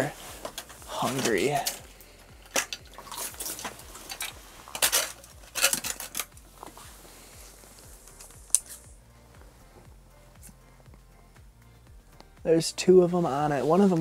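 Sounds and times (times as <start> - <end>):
fishing gear clicks and clatter: 0.4 - 6.7
metal pole rattles: 2.4 - 6.4.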